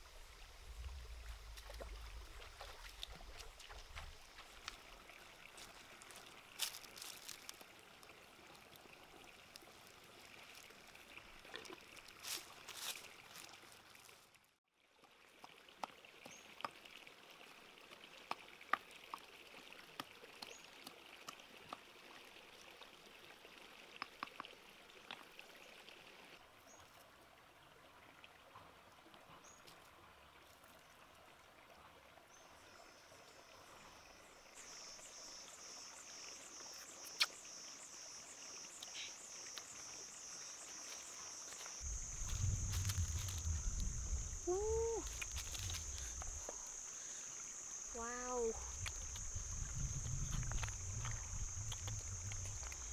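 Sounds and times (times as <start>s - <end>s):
insect chirping: 0.0s - 7.6s, 32.6s - 52.9s
faint outdoor ambience: 25.1s - 52.9s
low rumble: 41.8s - 44.5s, 48.8s - 52.9s.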